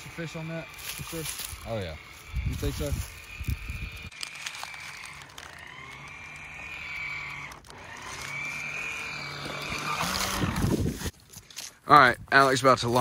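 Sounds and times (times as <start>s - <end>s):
toy boat electric motor whining: 0.0s - 11.1s.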